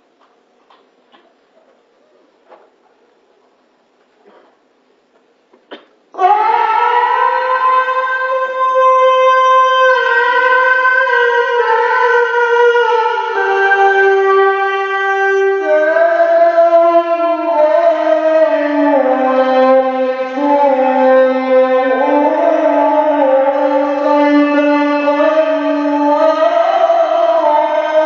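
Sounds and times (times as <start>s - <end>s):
man chanting through microphone: 6.1s - 28.0s.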